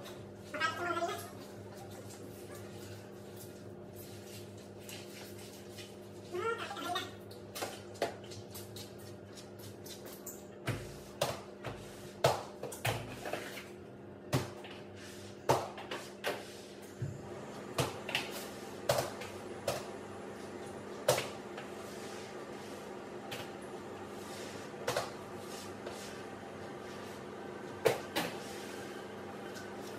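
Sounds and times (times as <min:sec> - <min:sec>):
steady low hum: 0:10.7 - 0:29.9.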